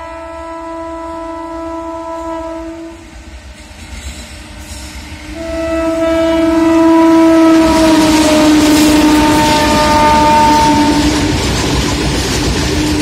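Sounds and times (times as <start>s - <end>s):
train air horn blasts: 0.0s - 3.2s, 5.2s - 11.4s
train running noise: 0.0s - 13.0s.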